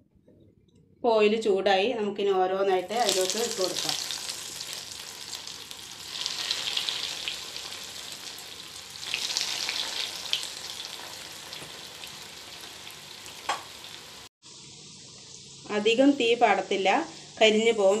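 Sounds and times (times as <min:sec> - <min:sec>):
chicken rolls sizzling in hot oil: 0:02.8 - 0:18.0.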